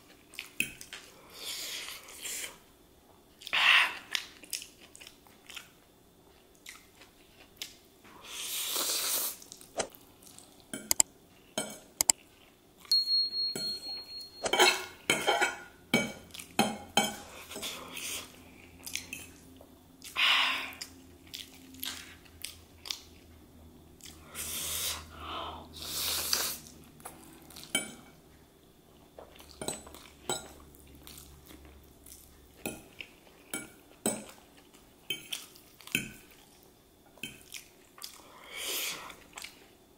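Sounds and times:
chewing noodles: 3.3 - 7.8, 20.0 - 23.3
fork clinking on ceramic plate: 12.9 - 17.2.

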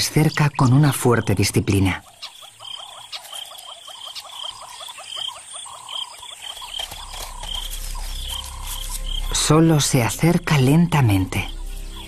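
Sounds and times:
frogs croaking: 0.0 - 12.0
higher pulsed frog calls: 2.0 - 9.4.

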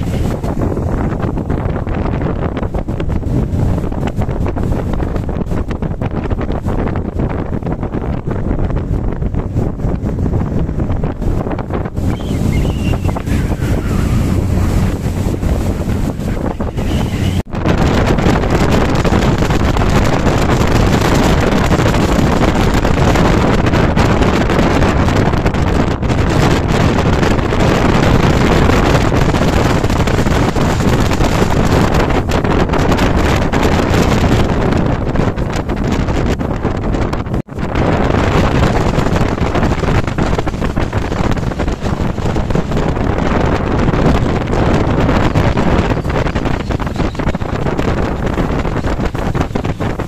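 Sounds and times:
outboard motor running: 0.0 - 25.4
boat engine: 0.0 - 50.0
water rushing along hull: 0.0 - 50.0
wind buffeting microphone: 0.0 - 50.0.

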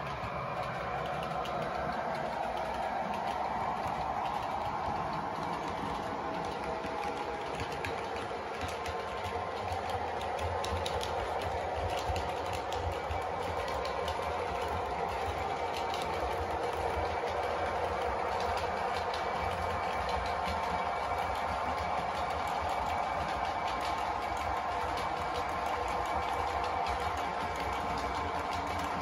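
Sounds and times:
model locomotive engine sound: 0.0 - 29.0
wheels clicking on rails: 0.0 - 29.0.

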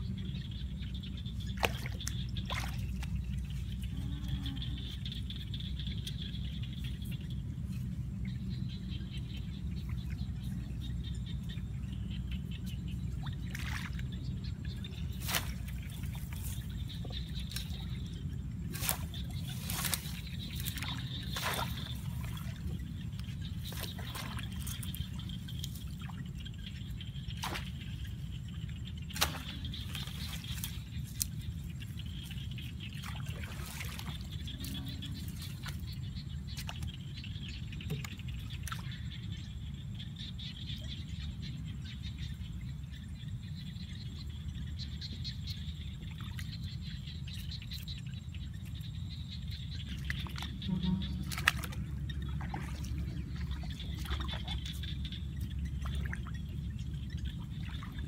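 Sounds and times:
faint high hum: 0.0 - 58.0
splashes in muddy water: 1.3 - 3.8, 13.0 - 37.2, 45.8 - 58.0.

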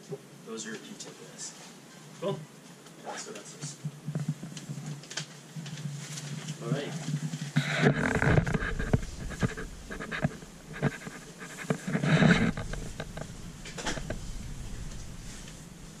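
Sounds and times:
microphone handling rustle: 3.5 - 16.0
breathy noisy swells: 12.0 - 16.0.

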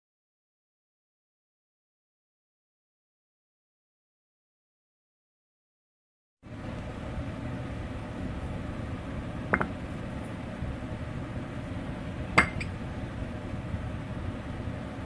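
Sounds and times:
steady background hum: 6.4 - 15.0
ceramic bowls clinking on table: 12.4 - 12.7.

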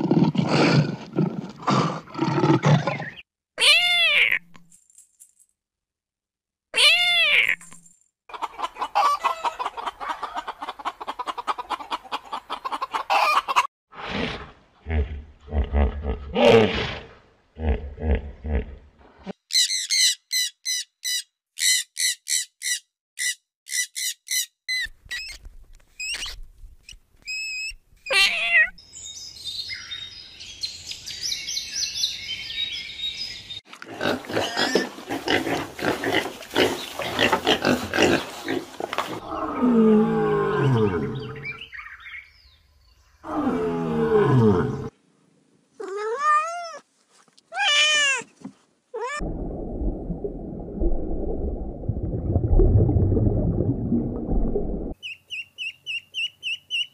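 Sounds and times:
cat meowing: 6.8 - 7.6, 28.1 - 28.8, 45.8 - 46.8, 47.5 - 48.3, 49.0 - 49.2.

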